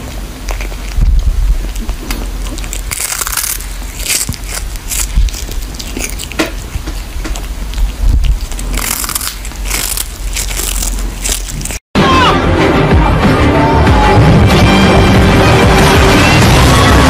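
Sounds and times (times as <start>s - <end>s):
cat crunching dried fish: 0.0s - 11.8s.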